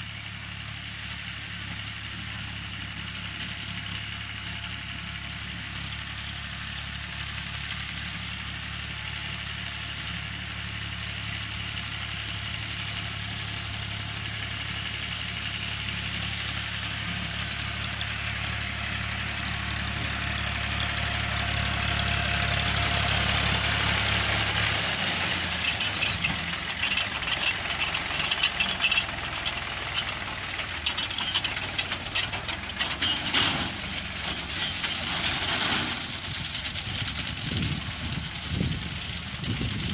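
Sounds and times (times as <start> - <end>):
tractor diesel engine running: 0.0 - 39.9
reaper crackling clatter: 10.8 - 39.9.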